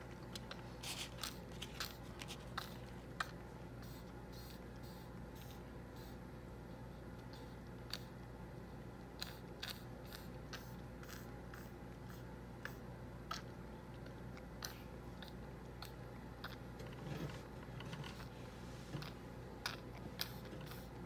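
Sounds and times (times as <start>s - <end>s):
steady low hum: 0.0s - 21.0s
toddler chewing and sucking: 0.2s - 3.4s, 19.0s - 21.0s.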